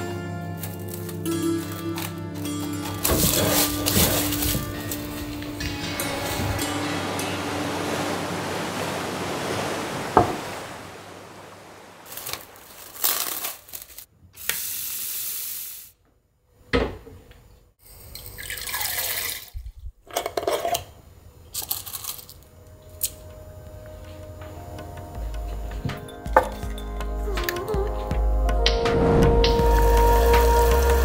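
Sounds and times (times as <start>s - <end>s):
water pouring into a pot: 18.0s - 19.6s.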